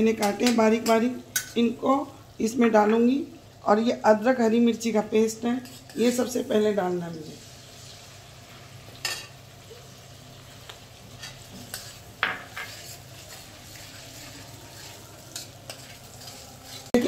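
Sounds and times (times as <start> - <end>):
spatula scraping and tapping pan: 0.2 - 1.6, 5.6 - 6.2, 10.6 - 17.0
paste sizzling in butter: 5.6 - 17.0.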